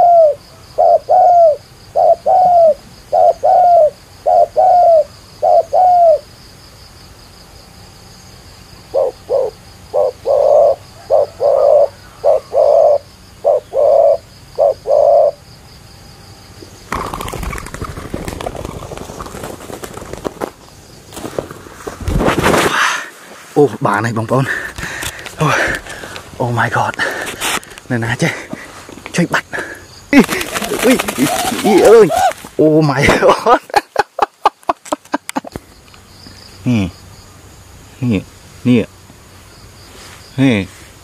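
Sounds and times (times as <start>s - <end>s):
doves cooing: 0.0s - 6.3s, 8.8s - 15.5s, 16.9s - 20.6s, 24.4s - 33.6s
rustling and clattering: 16.9s - 22.8s.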